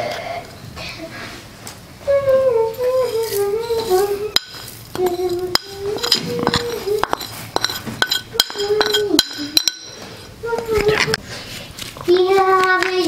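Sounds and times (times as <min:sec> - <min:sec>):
metal spoon scraping porcelain plate: 0:03.8 - 0:10.3.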